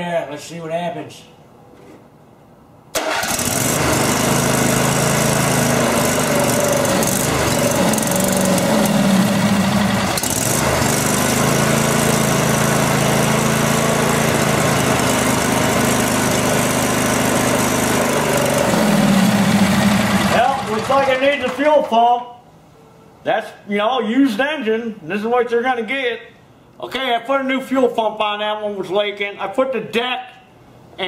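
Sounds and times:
lawn tractor engine running: 3.0s - 21.9s.

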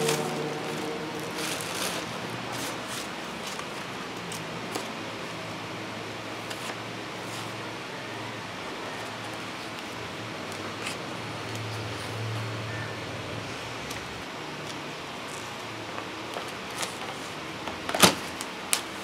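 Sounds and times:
paper rustling: 0.0s - 7.7s, 13.8s - 19.0s.

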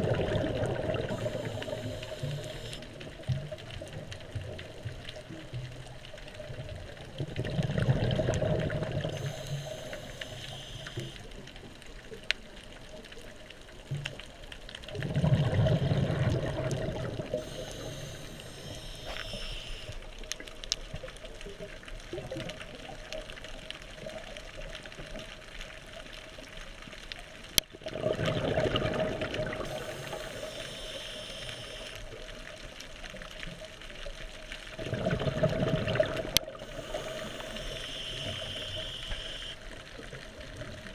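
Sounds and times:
exhaled bubbles underwater: 0.0s - 26.6s, 27.3s - 40.9s
regulator inhale hiss: 1.0s - 3.0s, 9.0s - 11.4s, 17.3s - 20.2s, 29.6s - 32.1s, 36.5s - 39.6s.

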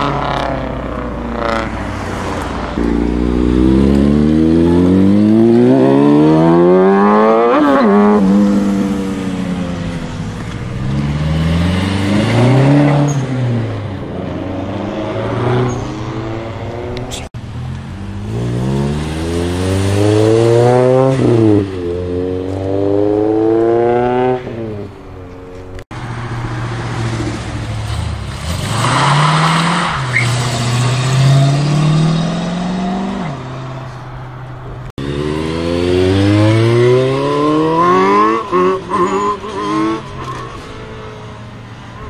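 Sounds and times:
car engine accelerating hard: 34.9s - 40.4s.

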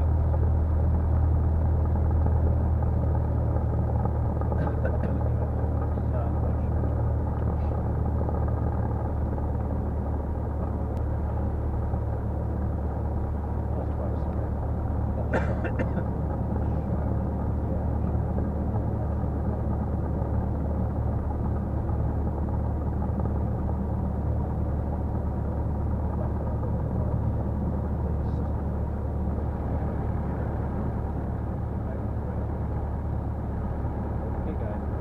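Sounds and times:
airplane engine and propeller: 0.0s - 35.0s.

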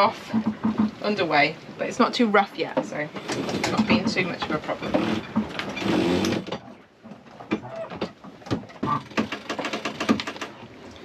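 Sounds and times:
rapid clicks and rattling: 8.5s - 10.6s.

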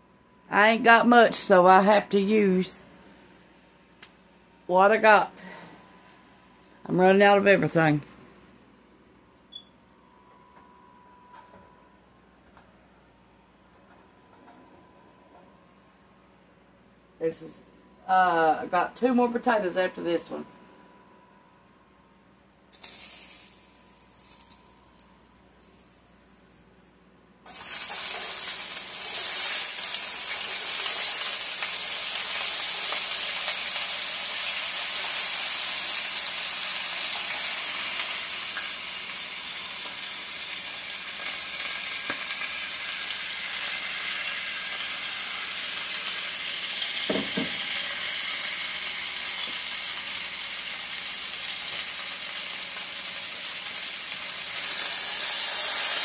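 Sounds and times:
potatoes sizzling in a skillet: 22.8s - 24.6s, 27.5s - 56.0s
knock: 47.1s - 47.6s.

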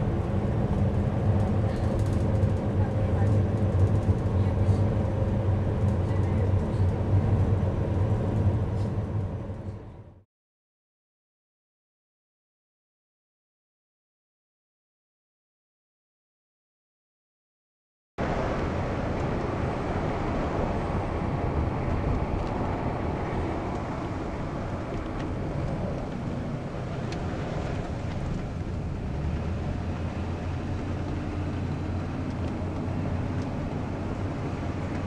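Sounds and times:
car interior road rumble: 0.0s - 10.2s, 18.2s - 35.0s.

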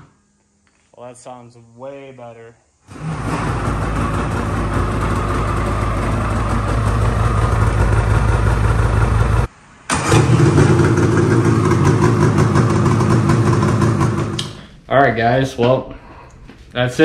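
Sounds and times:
snowmobile engine running: 2.9s - 9.5s, 10.1s - 14.4s.

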